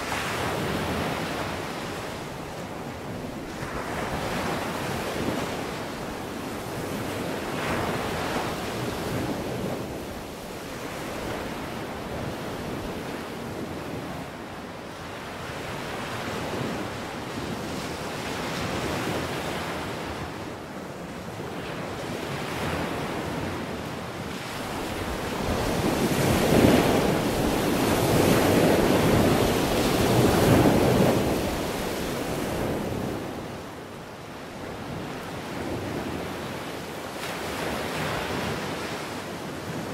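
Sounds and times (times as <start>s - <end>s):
surf crashing on rocks: 0.0s - 6.0s, 24.4s - 33.9s
wind buffeting microphone: 22.7s - 33.8s.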